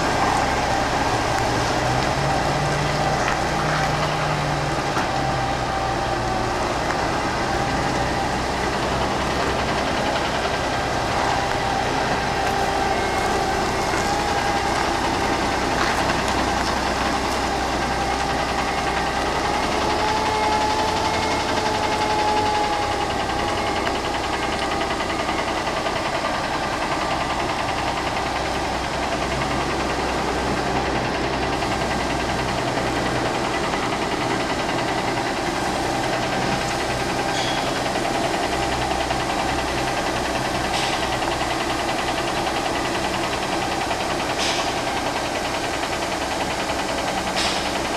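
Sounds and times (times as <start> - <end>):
diesel truck engine running: 0.0 - 47.9.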